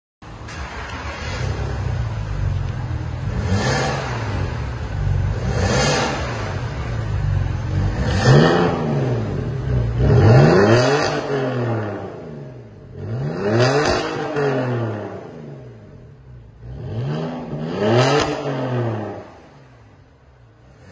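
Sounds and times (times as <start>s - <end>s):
car engine idling: 0.2s - 10.6s
car engine revving: 0.4s - 20.9s.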